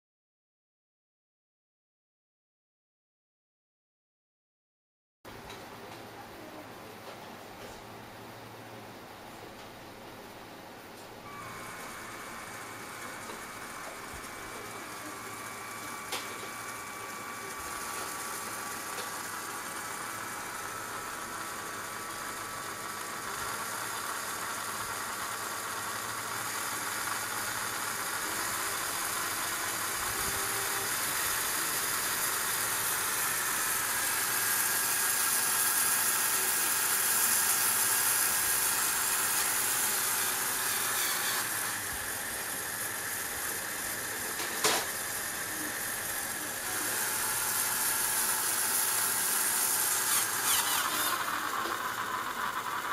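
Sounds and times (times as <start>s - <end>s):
electric motors whirring: 11.2s - 52.9s.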